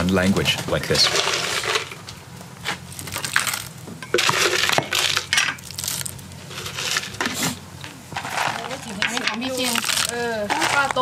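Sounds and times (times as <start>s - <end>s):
spoon scraping in plastic tub: 0.9s - 2.0s, 6.5s - 11.0s.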